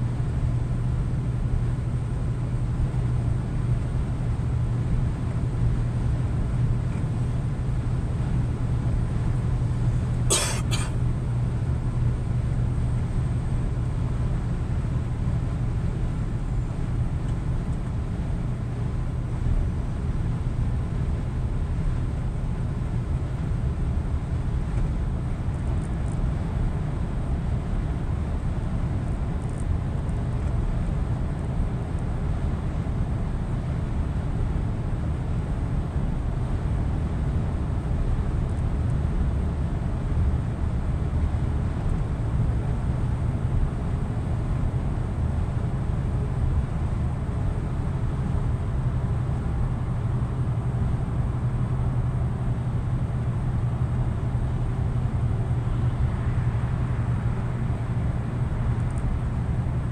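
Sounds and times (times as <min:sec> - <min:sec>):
truck engine drone: 0:04.6 - 0:18.5.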